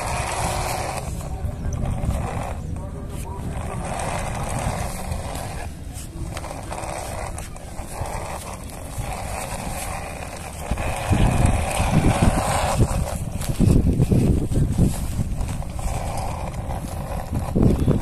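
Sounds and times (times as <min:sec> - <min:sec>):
toy truck wheels rolling on dirt: 0:00.0 - 0:18.0.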